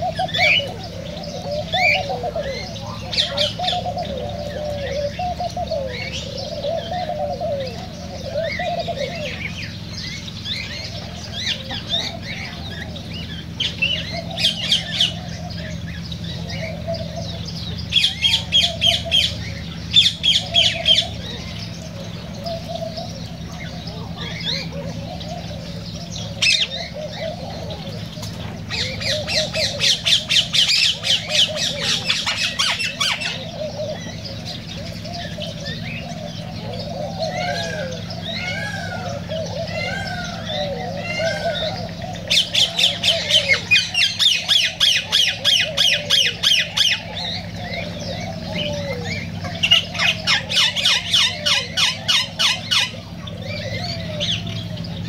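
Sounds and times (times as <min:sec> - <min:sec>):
birds chirping and squawking: 0:00.0 - 0:55.0
birds warbling chatter: 0:00.0 - 0:55.0
steady low hum: 0:00.0 - 0:55.0.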